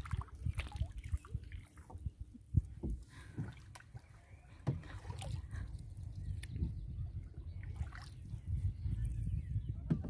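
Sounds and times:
canoe paddle strokes: 0.0 - 6.6
water lapping and splashing on hull: 0.0 - 10.0
wind rumble on microphone: 0.0 - 10.0.

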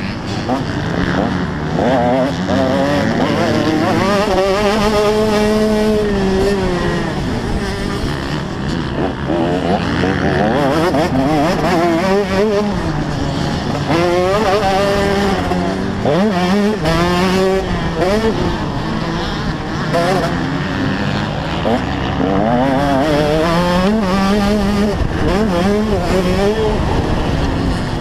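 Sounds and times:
motocross engine revving: 0.0 - 28.0.

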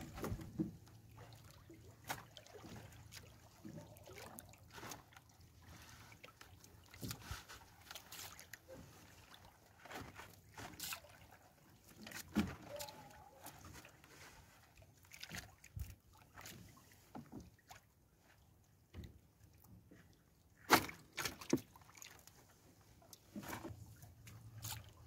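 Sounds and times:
fishing net rustling: 0.0 - 0.8, 3.6 - 11.2, 11.9 - 15.4.

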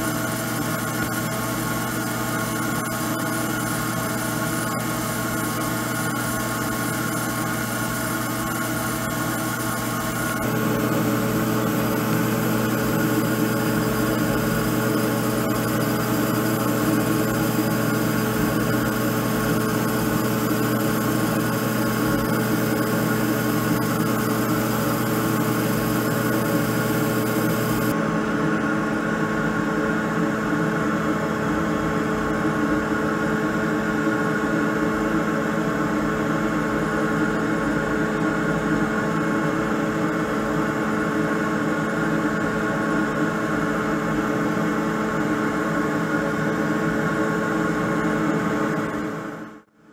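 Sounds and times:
laser engraver humming: 0.0 - 28.0.

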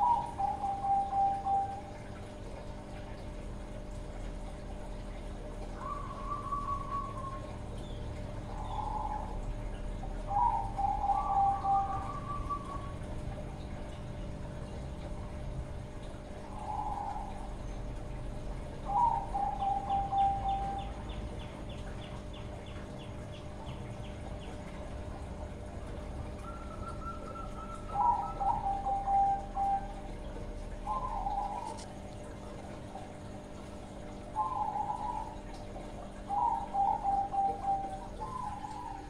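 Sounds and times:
dove cooing: 0.0 - 3.2, 4.2 - 15.1, 15.7 - 39.0.

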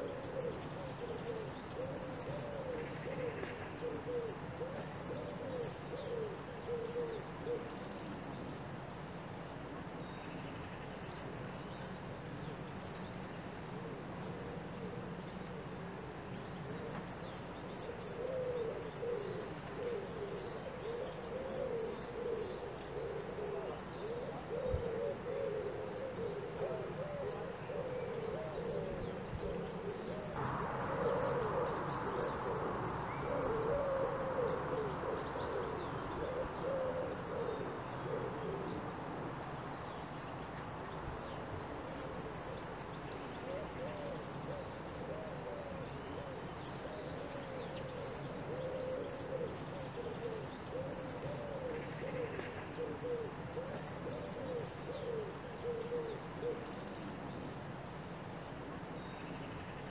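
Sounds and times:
bird cooing: 0.0 - 8.4, 13.6 - 57.2
steady hiss: 30.4 - 45.1.

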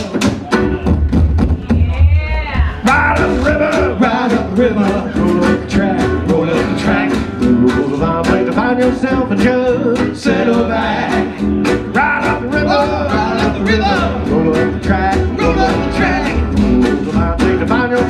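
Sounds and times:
steady percussive beat: 0.0 - 18.0
acoustic guitar strumming: 2.4 - 18.0
bending lead melody: 2.5 - 18.0.

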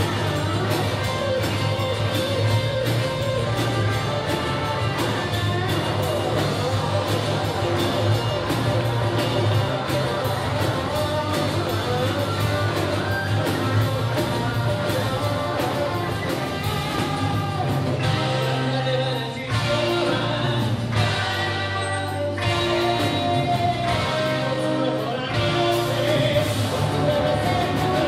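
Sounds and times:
live pop rock band playing: 0.0 - 28.0
lead vocal singing: 13.8 - 28.0.

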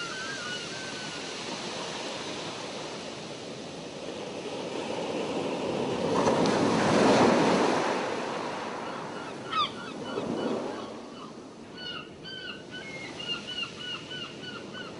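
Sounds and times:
sea waves washing in: 0.0 - 11.7
birds calling: 9.2 - 14.9.

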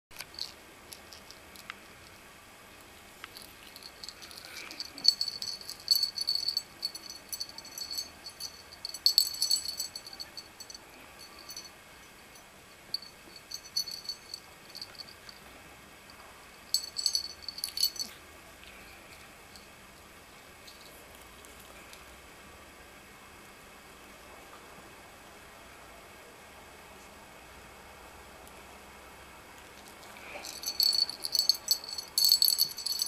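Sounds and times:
small metallic rattle jingling: 0.2 - 2.2, 3.3 - 11.7, 12.3 - 15.5, 16.6 - 18.2, 30.0 - 33.0.

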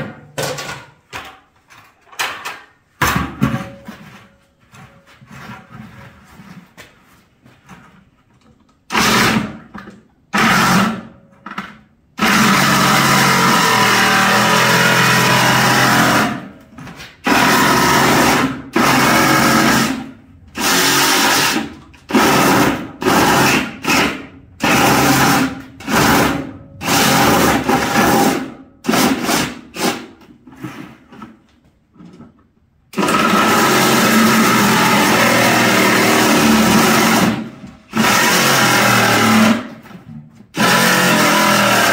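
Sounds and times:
reciprocating saw cutting plastic: 40.5 - 41.9.

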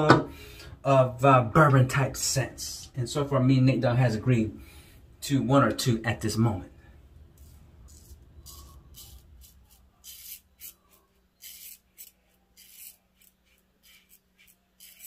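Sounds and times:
razor scraping stubble: 7.4 - 15.0.

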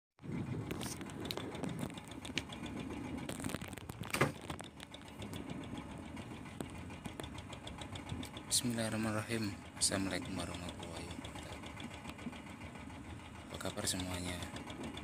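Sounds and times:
boat engine chugging: 0.2 - 15.0
water rushing along hull: 0.2 - 15.0.

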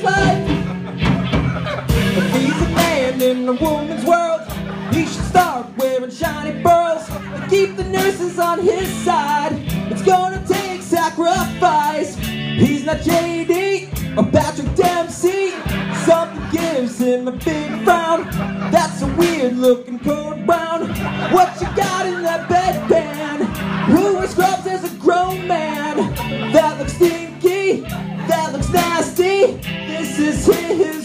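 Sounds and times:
man singing through a pa: 0.0 - 0.5, 2.2 - 31.0
backing music with a beat: 0.0 - 31.0.

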